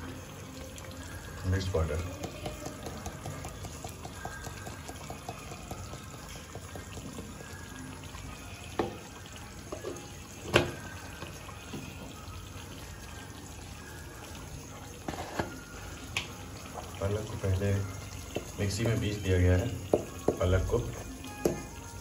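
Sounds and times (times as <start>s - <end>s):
thick puree bubbling and popping: 0.0s - 22.0s.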